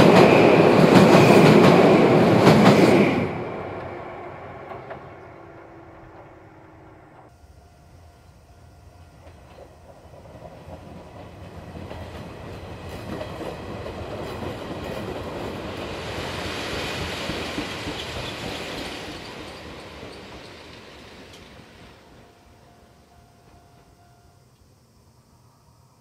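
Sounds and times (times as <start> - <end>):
train passing: 0.0 - 26.0.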